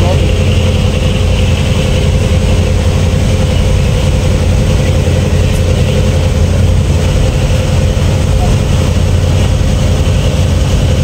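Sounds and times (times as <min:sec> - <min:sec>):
boat engine droning: 0:00.0 - 0:11.0
water churning in wake: 0:00.0 - 0:11.0.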